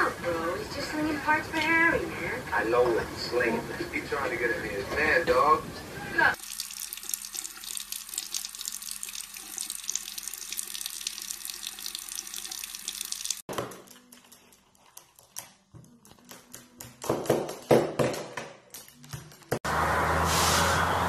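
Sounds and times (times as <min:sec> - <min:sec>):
tap water running into sink: 0:06.4 - 0:13.5.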